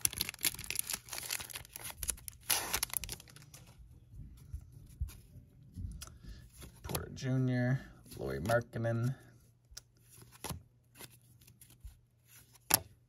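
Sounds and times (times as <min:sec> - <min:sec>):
loud wrapper rip: 0:00.0 - 0:03.3
plastic wrapper crinkling: 0:00.0 - 0:03.8.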